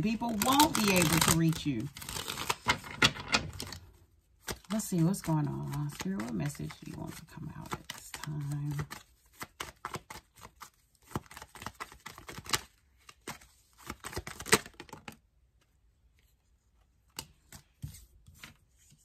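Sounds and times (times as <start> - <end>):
cards being shuffled: 0.0 - 15.2.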